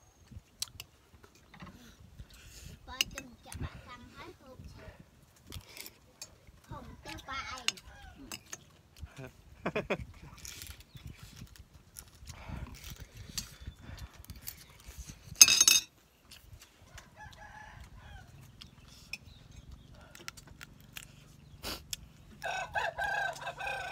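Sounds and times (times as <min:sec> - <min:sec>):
chewing and mouth sounds: 0:16.3 - 0:22.4
rooster crowing: 0:22.4 - 0:23.9.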